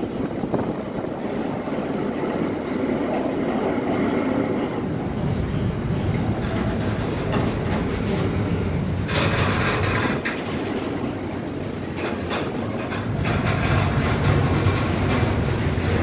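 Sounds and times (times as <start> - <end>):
train wheels rumbling on rails: 0.0 - 16.0
clacking over rail joints: 6.1 - 16.0.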